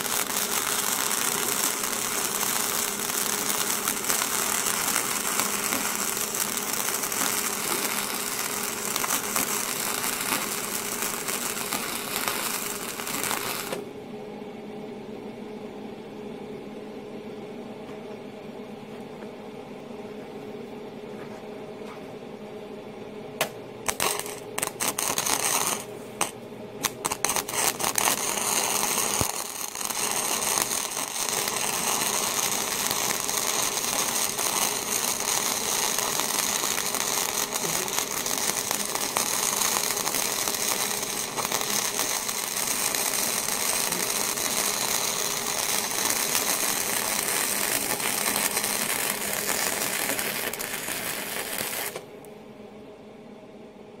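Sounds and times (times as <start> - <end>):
welding arc crackling: 0.0 - 13.8, 23.4 - 52.1.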